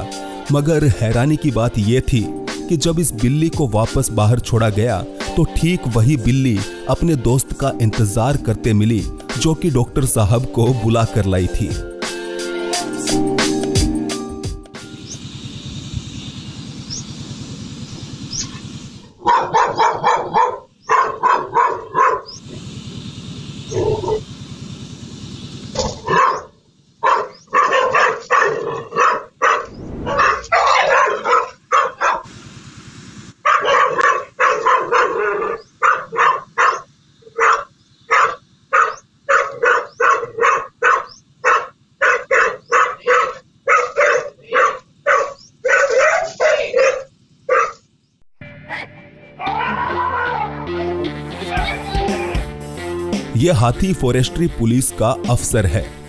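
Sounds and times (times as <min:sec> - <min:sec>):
dog barking: 0:19.2 - 0:22.4, 0:23.7 - 0:24.2, 0:25.8 - 0:32.3, 0:33.4 - 0:47.8.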